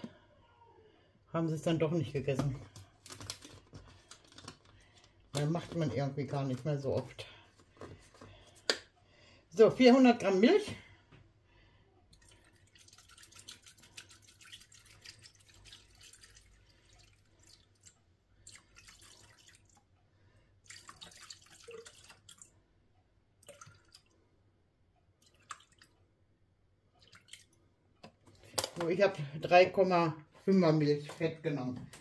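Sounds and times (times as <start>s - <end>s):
milk trickling into a metal bowl: 12.1s - 19.9s, 20.6s - 22.6s, 23.4s - 24.2s, 25.2s - 26.0s, 27.0s - 27.6s.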